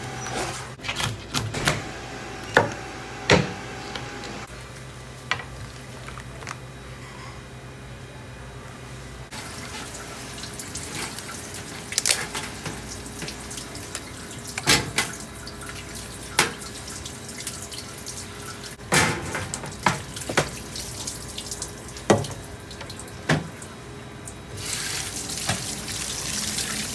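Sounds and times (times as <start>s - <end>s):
lobster shells cracking: 11.9s - 12.3s
tap water running into sink: 19.5s - 23.5s, 24.6s - 26.9s.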